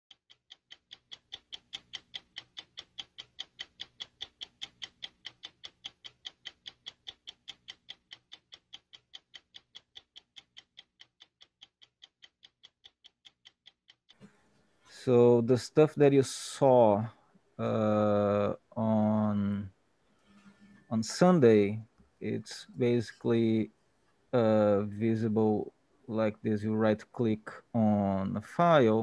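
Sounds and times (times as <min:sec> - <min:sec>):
steady ticking: 0:00.1 - 0:14.2.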